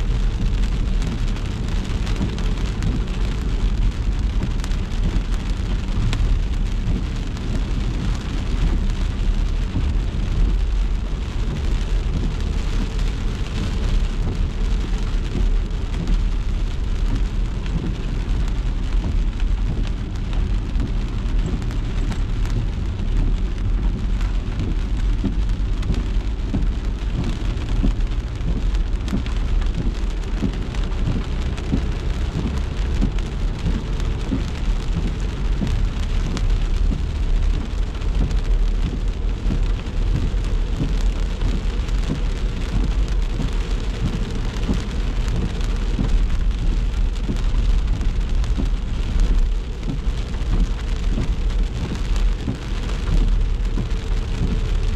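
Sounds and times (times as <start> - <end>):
car and road rumble: 0.0 - 54.9
rain falling on a car: 0.0 - 54.9.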